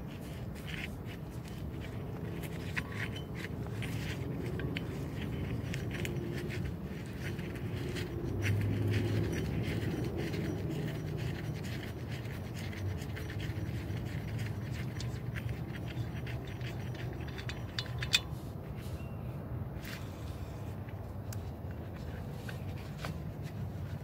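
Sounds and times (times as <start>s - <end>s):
pulley bearing rumbling: 0.0s - 19.0s
glove scratching against pulley: 0.0s - 19.1s, 19.8s - 24.0s.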